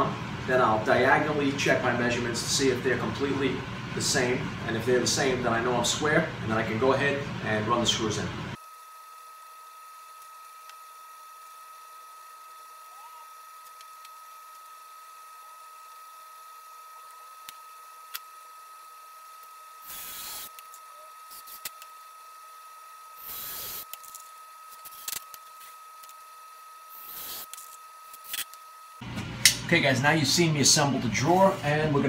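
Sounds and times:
cordless drill driving screws: 19.4s - 21.9s, 23.2s - 26.2s, 26.9s - 28.6s.

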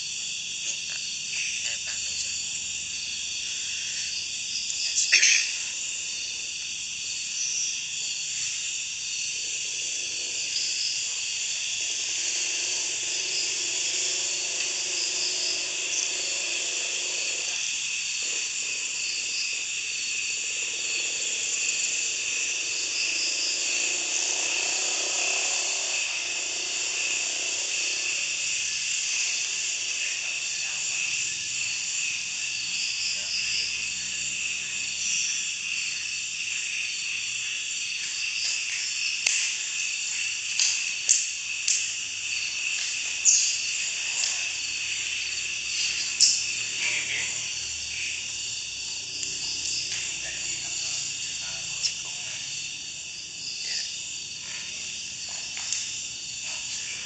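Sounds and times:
crickets chirping: 0.0s - 57.0s
sharp click: 39.2s - 39.6s.

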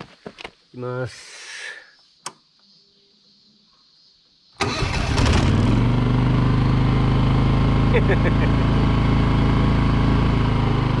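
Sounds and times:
engine cranking: 4.6s - 5.8s
generator engine running: 4.6s - 11.0s.

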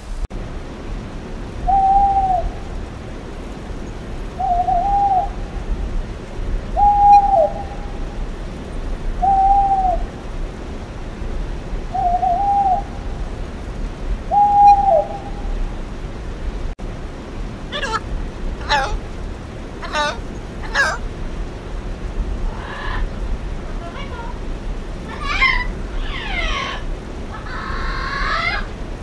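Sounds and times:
owl hooting: 1.7s - 2.6s, 4.4s - 5.4s, 6.8s - 7.9s, 9.2s - 10.1s, 11.9s - 12.9s, 14.3s - 15.5s, 17.7s - 19.0s, 19.8s - 21.1s, 22.5s - 23.1s, 25.1s - 28.7s.

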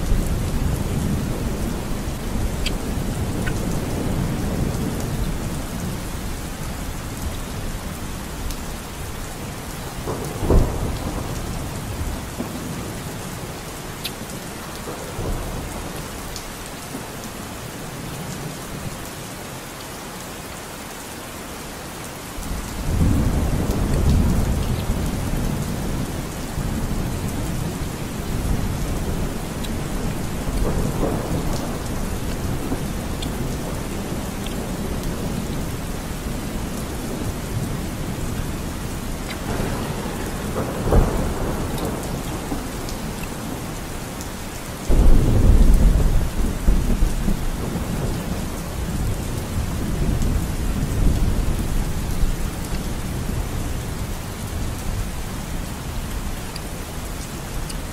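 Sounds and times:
rain falling: 0.0s - 57.9s
thunder rumbling: 9.8s - 13.6s, 22.8s - 57.0s.

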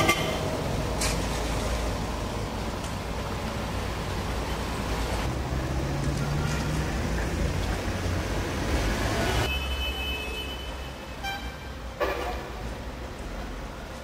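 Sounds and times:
rumble of passing vehicles: 0.0s - 14.0s.

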